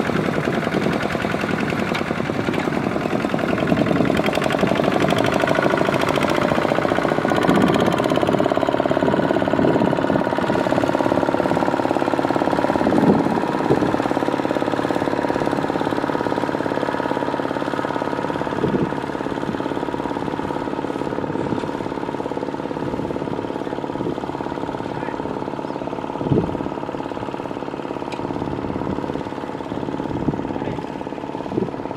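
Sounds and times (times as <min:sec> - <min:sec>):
diesel tractor engine running: 0:00.0 - 0:31.9.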